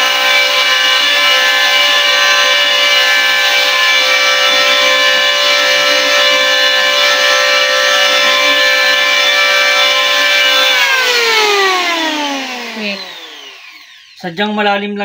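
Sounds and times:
electric planer whine: 0.0s - 14.2s
blades shaving wood: 0.0s - 14.3s.

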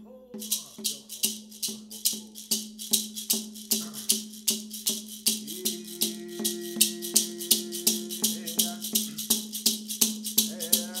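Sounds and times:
rattle shaken in a steady beat: 0.4s - 11.0s
person singing a held note: 5.4s - 8.9s.

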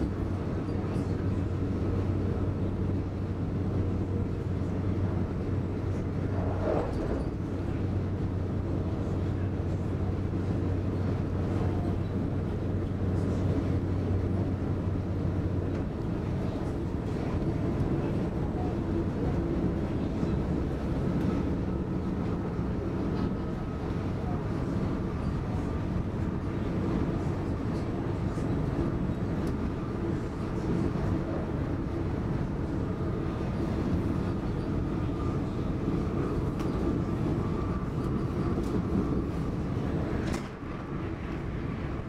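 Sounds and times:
train wheels rumbling on rail: 0.0s - 42.0s
low hum: 5.8s - 7.9s.

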